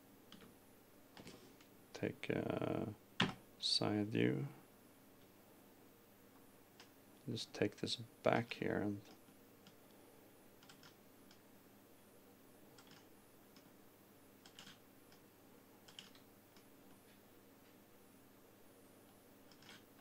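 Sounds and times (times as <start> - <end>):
computer mouse and keyboard clicks: 10.6 - 11.4, 12.8 - 13.7, 14.4 - 15.2, 15.8 - 16.7, 19.5 - 19.9.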